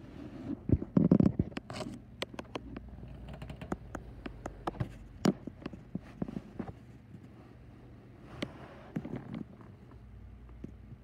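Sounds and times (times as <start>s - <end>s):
small clicks and taps: 1.0s - 7.2s.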